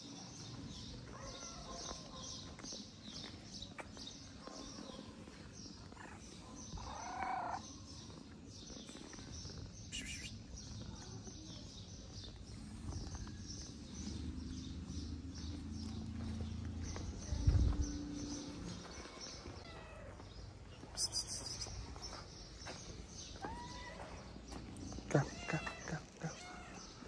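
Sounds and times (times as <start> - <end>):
birds chirping: 0.0 - 27.0
cat meowing: 23.4 - 24.2, 25.2 - 27.0.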